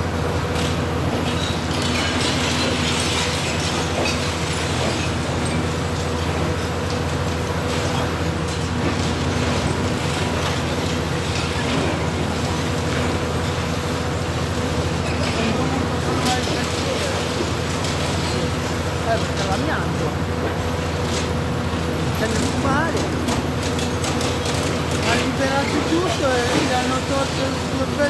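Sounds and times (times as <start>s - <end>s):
excavator diesel engine running: 0.0s - 28.0s
masonry cracking and debris falling: 0.6s - 14.2s, 14.8s - 19.8s.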